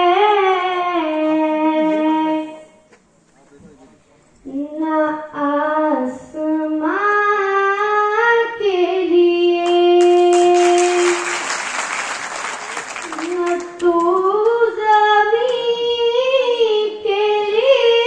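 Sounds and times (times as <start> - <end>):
girl singing into microphone: 0.0 - 2.8, 4.4 - 11.3, 13.1 - 18.0
audience applause: 10.0 - 14.1.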